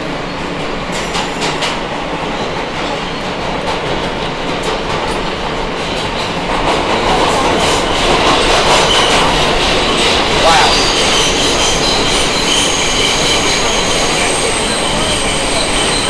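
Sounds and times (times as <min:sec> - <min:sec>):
subway train rumbling in tunnel: 0:00.0 - 0:16.0.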